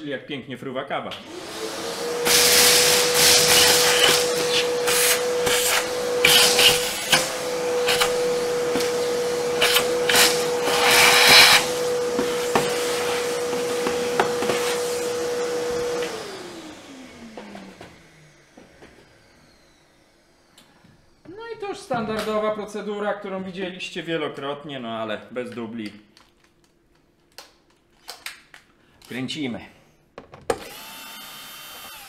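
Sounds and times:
vacuum cleaner motor whine: 1.2 - 21.6, 30.5 - 32.0.

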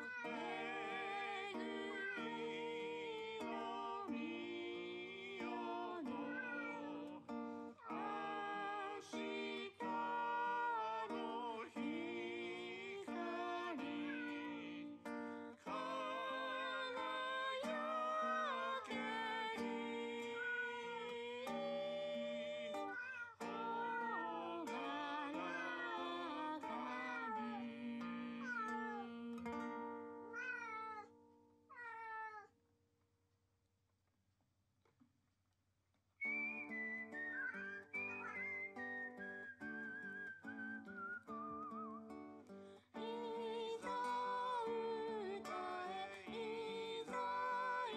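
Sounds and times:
cat meowing: 0.0 - 2.6, 6.0 - 8.1, 13.9 - 14.5, 20.4 - 20.8, 22.8 - 24.4, 25.0 - 27.6, 28.4 - 29.1, 30.3 - 32.5
song with plucked strings: 0.0 - 30.4, 41.6 - 47.9
person singing with guitar: 0.0 - 31.1, 36.3 - 47.9.

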